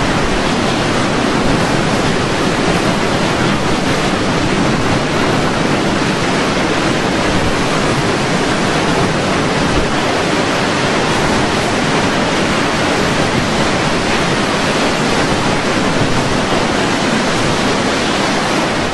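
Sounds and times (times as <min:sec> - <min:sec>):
rushing wind and water: 0:00.0 - 0:18.9.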